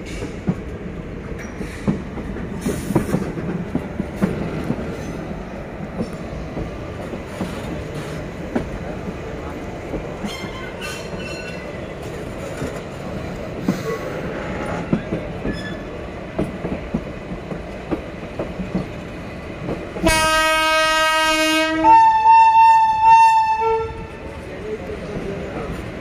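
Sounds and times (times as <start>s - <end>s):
train rolling over rails: 0.0s - 26.0s
train wheel clicks: 0.1s - 20.1s
locomotive horn: 20.0s - 24.2s.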